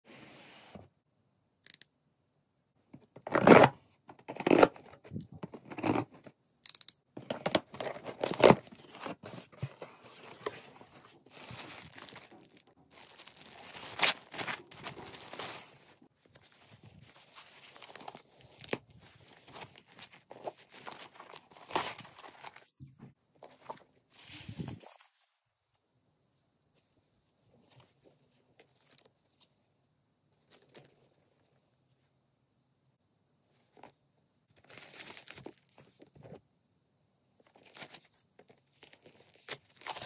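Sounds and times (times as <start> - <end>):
paper and plastic rustling: 7.6 - 22.7
packing tape tearing: 11.5 - 15.6.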